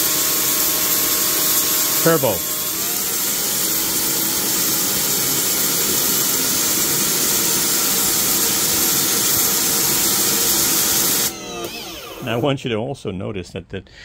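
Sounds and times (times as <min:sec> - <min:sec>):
water jet hissing on concrete: 0:00.0 - 0:11.3
pressure washer motor whine: 0:00.0 - 0:12.5.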